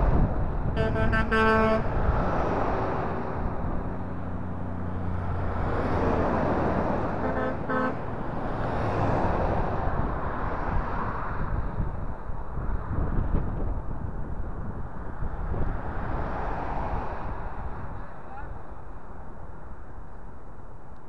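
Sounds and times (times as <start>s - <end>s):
trucks passing on highway: 0.0s - 21.0s
vehicle horn toots: 0.8s - 2.0s, 7.2s - 8.1s.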